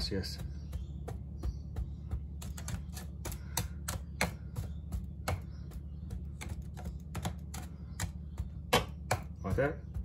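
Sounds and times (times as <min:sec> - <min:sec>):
glass tapping on crumb base: 0:00.2 - 0:09.6.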